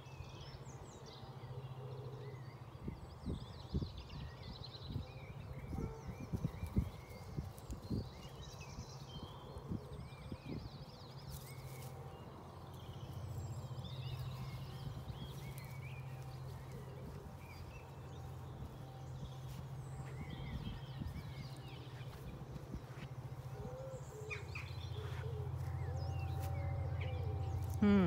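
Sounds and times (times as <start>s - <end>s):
small birds chirping: 2.5s - 28.0s
steady low hum: 6.2s - 28.0s.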